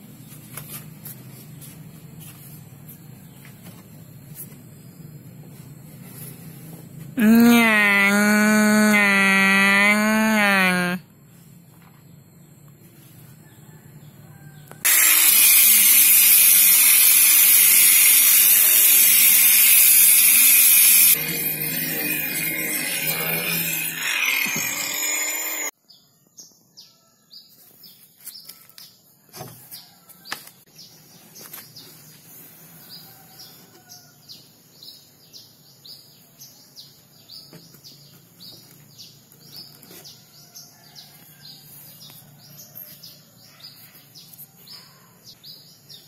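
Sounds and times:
power tool on wood: 7.2s - 11.0s, 14.8s - 25.7s.

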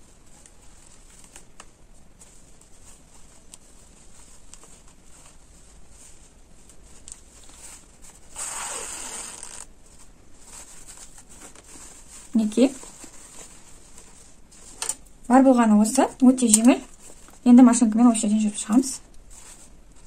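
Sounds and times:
fabric rustling: 0.0s - 20.0s.

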